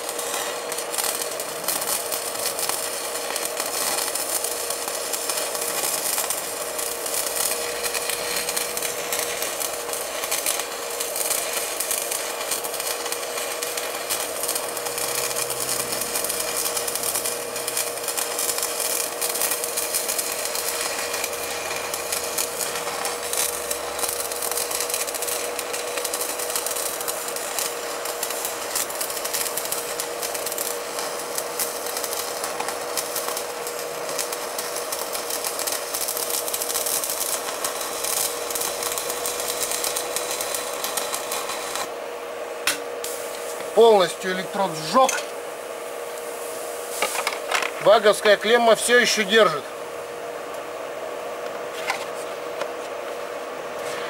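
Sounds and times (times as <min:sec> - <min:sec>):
electrical crackling hiss: 0:00.0 - 0:42.0, 0:42.8 - 0:50.0
constant humming tone: 0:00.1 - 0:54.0.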